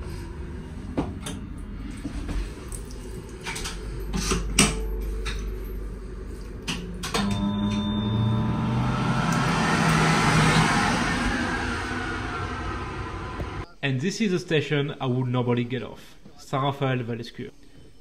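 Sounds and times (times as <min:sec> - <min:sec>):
washbasin unit hum and hiss: 0:00.0 - 0:16.3
moving train rumble: 0:08.0 - 0:13.7.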